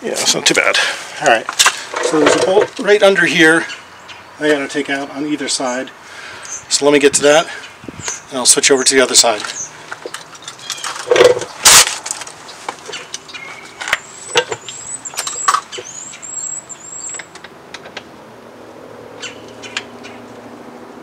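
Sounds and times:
low vehicle hum: 9.4 - 21.0.

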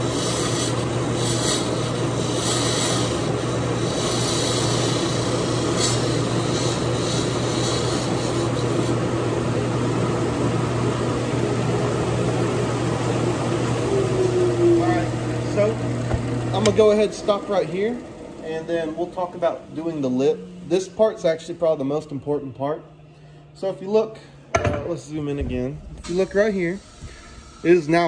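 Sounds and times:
turning tool cutting wood: 0.0 - 11.0
wood lathe motor hum: 0.0 - 20.2.

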